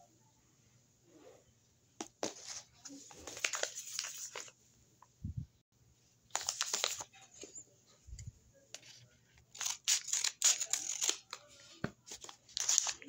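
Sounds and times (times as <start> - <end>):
paper bags crinkling: 2.3 - 4.5, 6.4 - 7.1, 12.1 - 13.0.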